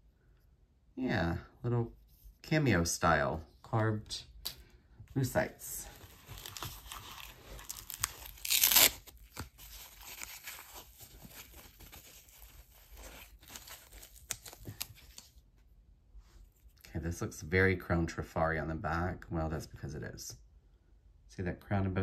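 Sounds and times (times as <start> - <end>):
packaging rustling and crinkling: 5.8 - 15.4
packaging ripping: 6.1 - 15.3.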